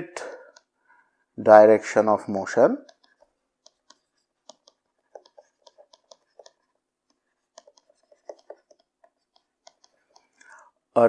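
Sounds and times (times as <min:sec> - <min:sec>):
stylus tapping on pen tablet: 0:02.8 - 0:10.4.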